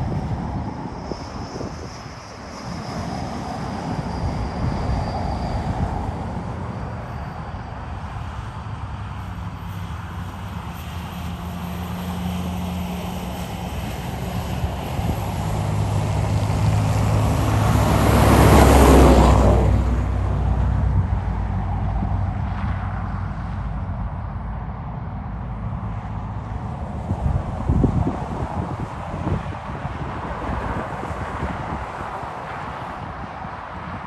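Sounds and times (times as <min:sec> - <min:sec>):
vehicle passing close: 0:11.2 - 0:23.8
diesel truck engine driving past: 0:11.4 - 0:24.4.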